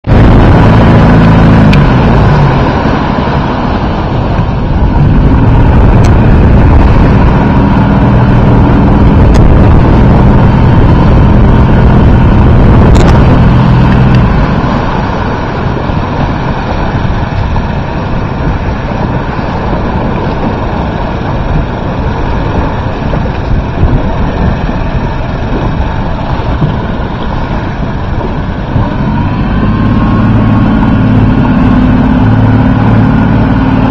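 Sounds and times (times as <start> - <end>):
motorboat engine running: 0.0 - 33.9
wind on microphone: 0.0 - 33.9.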